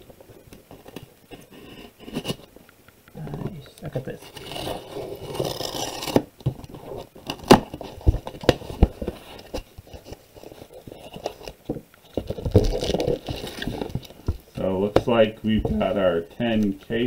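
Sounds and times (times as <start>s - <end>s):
tape slit with scratchy rasp: 4.1s - 7.6s
cardboard knocks and rustles: 7.3s - 10.1s.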